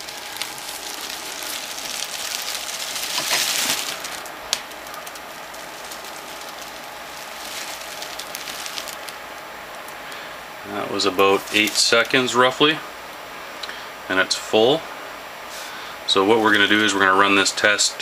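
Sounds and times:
plastic bag crinkling: 0:00.0 - 0:10.3, 0:10.9 - 0:12.5
fan blowing: 0:00.0 - 0:18.0.

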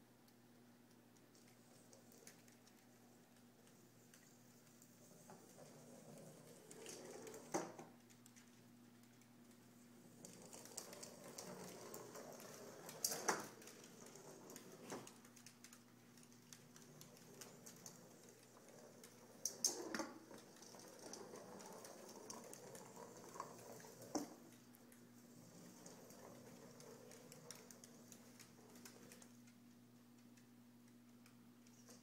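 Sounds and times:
dog claws on hardwood floor: 0:10.2 - 0:32.0.

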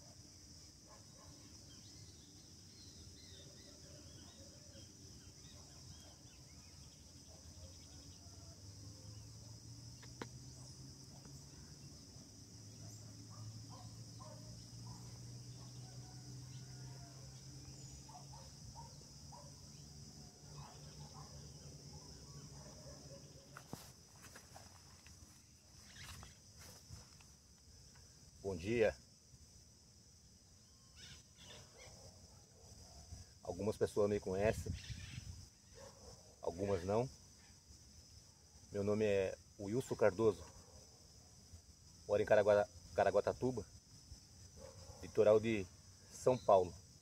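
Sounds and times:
crickets chirping: 0:00.0 - 0:47.0.

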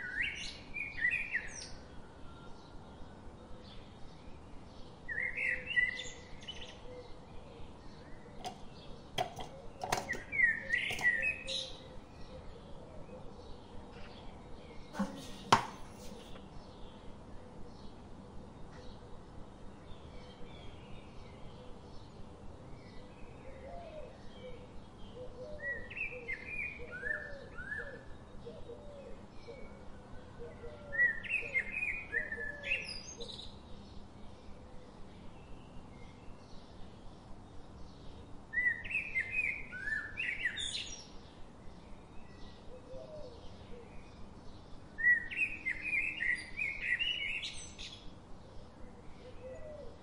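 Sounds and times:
birds chirping: 0:06.6 - 0:17.1.

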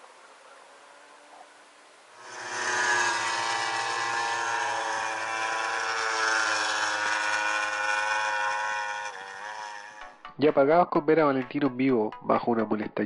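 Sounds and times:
racing motorcycle engines high revs: 0:02.1 - 0:10.3.

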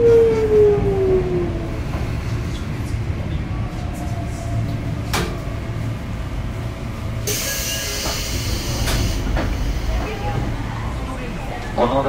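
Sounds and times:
train car low hum: 0:00.0 - 0:12.0
pneumatic air hiss: 0:07.3 - 0:09.8.

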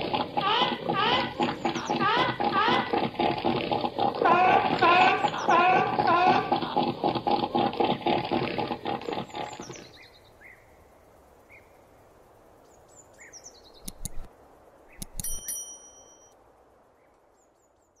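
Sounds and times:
seal calling harshly: 0:00.0 - 0:09.8
bird chirps: 0:00.4 - 0:02.8
clicks and bell chime effect: 0:15.1 - 0:16.3.

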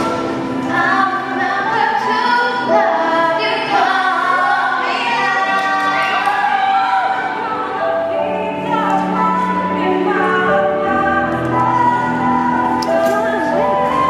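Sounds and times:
woman singing lead: 0:00.0 - 0:14.0
women singing harmony: 0:00.0 - 0:14.0.

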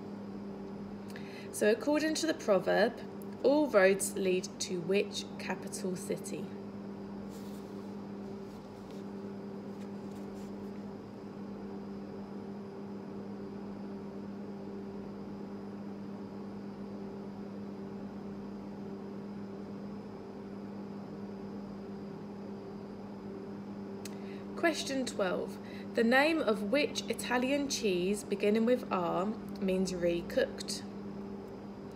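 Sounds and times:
low electrical hum: 0:00.0 - 0:31.9.

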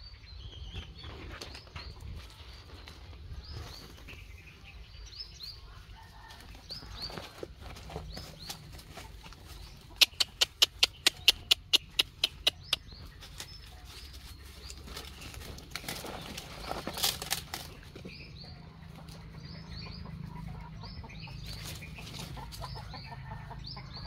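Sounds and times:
chickens clucking and chirping: 0:00.0 - 0:24.0
rustling in dry leaves: 0:01.0 - 0:10.0, 0:13.0 - 0:19.2, 0:21.4 - 0:22.7.

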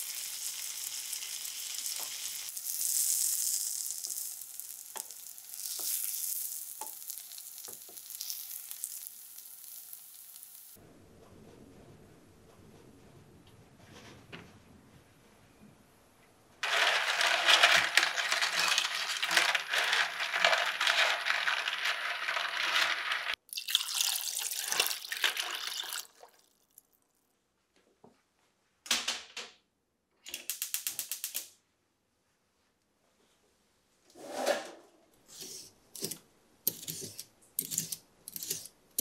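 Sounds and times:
clam shells clattering: 0:16.6 - 0:23.4
running tap water: 0:21.1 - 0:26.3.

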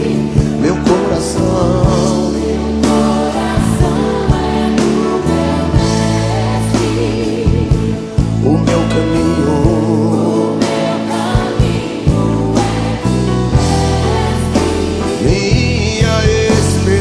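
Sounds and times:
drums beating: 0:00.0 - 0:17.0
people singing worship song: 0:00.0 - 0:17.0.

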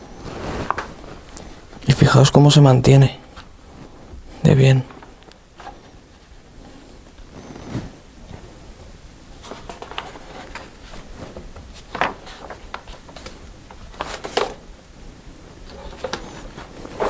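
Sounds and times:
magazine pages turning: 0:00.2 - 0:01.3, 0:09.4 - 0:14.6, 0:15.6 - 0:17.0.

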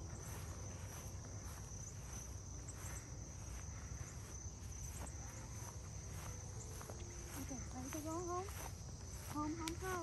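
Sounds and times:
crickets trilling: 0:00.0 - 0:10.0
footsteps on grass: 0:00.0 - 0:10.0.

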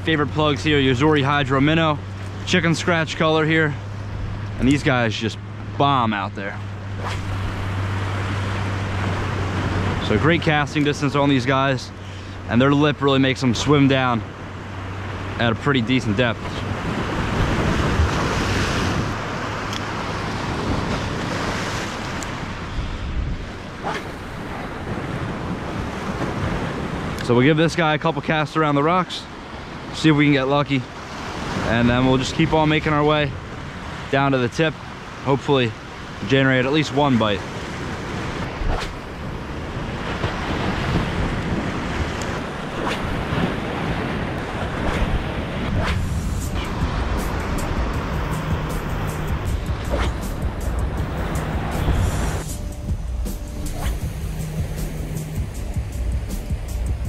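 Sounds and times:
ocean surf: 0:00.0 - 0:57.0
wind buffeting microphone: 0:16.6 - 0:27.2, 0:37.5 - 0:57.0.

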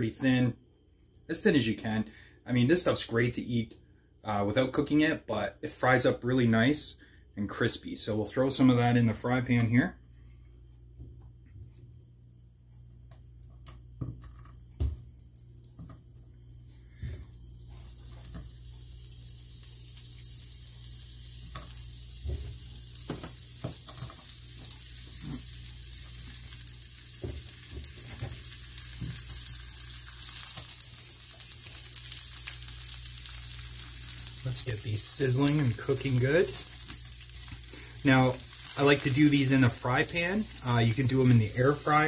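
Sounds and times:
meat sizzling in a pan: 0:14.8 - 0:42.0.

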